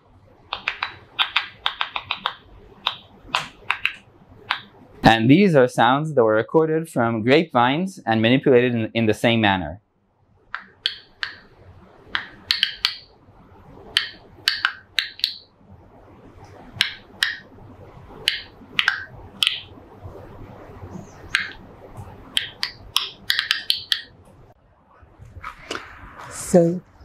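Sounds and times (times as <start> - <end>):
sharp irregular clicks: 0.5 - 4.7, 10.5 - 11.5, 12.1 - 13.1, 13.9 - 15.4, 18.2 - 19.7, 21.2 - 24.2.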